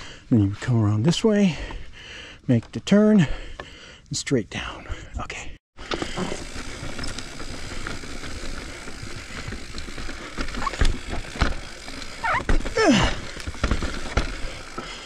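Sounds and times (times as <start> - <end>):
mountain bike rattling over wood: 5.8 - 15.0.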